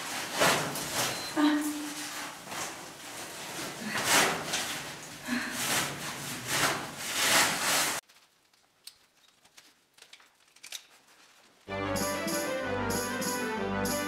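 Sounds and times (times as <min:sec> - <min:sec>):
rustling and scraping on rope: 0:01.8 - 0:11.7.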